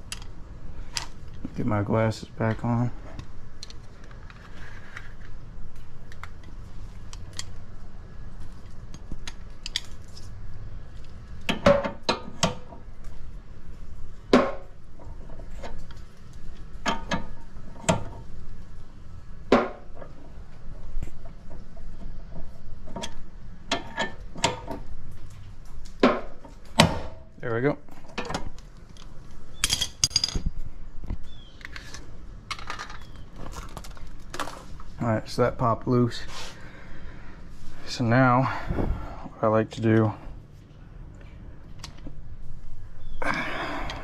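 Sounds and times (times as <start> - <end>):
metallic clanks of tools and parts: 16.8 - 18.2, 21.5 - 24.9, 28.0 - 30.5.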